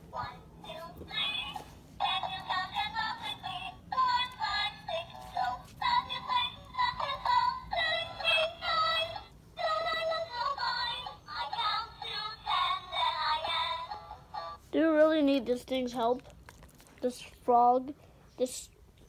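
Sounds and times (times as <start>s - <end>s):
toy singing synthesized song: 0.2s - 14.6s.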